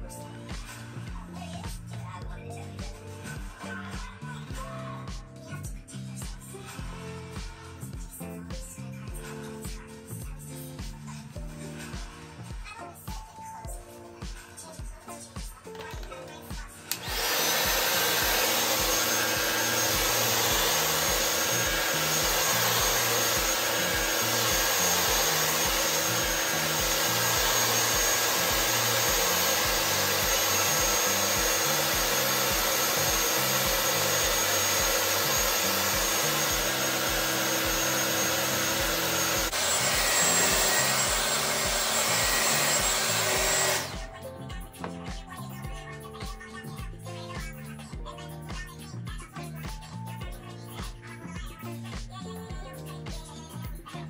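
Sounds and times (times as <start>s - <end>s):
music with a steady beat: 0.0s - 54.0s
hair dryer blowing: 16.8s - 44.2s.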